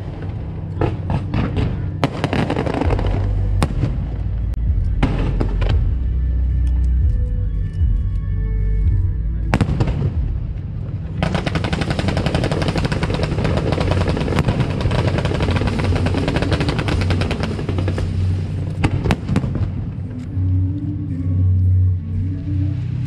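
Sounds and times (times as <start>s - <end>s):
firework bangs: 0.0s - 4.3s, 9.5s - 20.1s
fireworks crackling barrage: 0.0s - 6.2s, 9.5s - 20.3s
background music: 0.0s - 23.0s.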